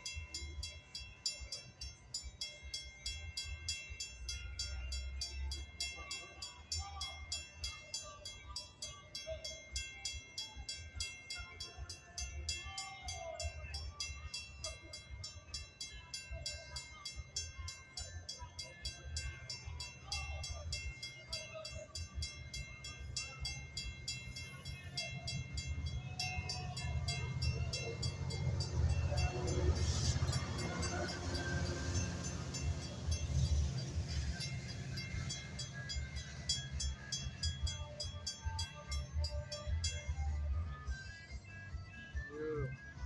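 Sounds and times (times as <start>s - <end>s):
crossing bell ringing: 0.0s - 42.2s
train wheels rumbling on rails: 22.1s - 39.4s.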